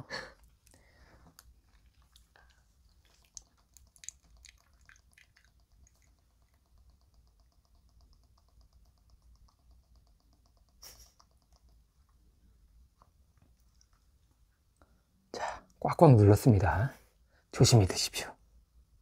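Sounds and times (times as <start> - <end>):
liquid dripping rapidly: 1.5 - 11.8.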